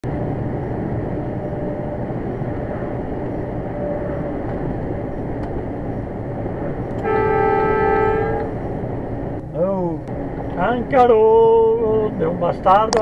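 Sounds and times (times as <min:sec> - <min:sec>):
diesel engine and road rumble: 0:00.0 - 0:13.0
truck horn blast: 0:07.0 - 0:08.6.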